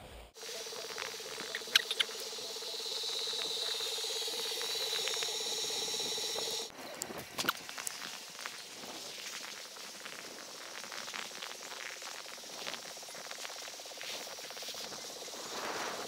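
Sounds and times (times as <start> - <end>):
pulsing hum: 0.0 - 6.7
skis scraping over snow: 0.4 - 16.0.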